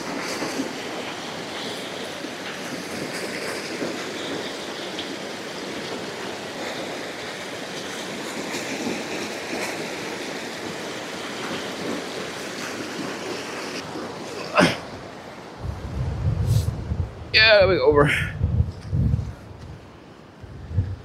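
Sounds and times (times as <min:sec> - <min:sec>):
stream rushing over rocks: 0:00.0 - 0:16.4.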